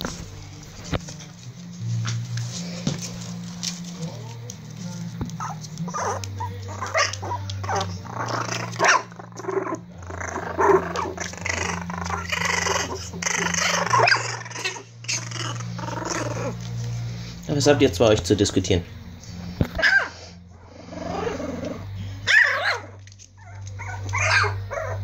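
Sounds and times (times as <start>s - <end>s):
steady low hum: 0.0s - 25.0s
puppies yipping and barking: 5.3s - 17.0s, 19.6s - 25.0s.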